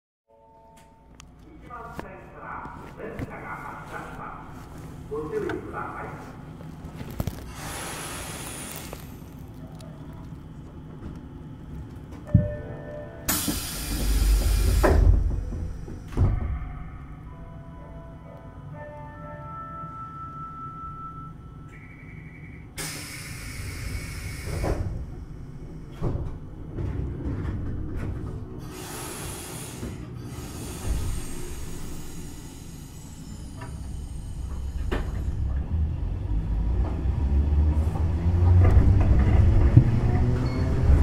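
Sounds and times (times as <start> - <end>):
tram running rumble: 1.3 - 41.0
compressed air hissing: 7.5 - 9.3, 13.3 - 15.3, 22.8 - 25.0, 28.6 - 35.4.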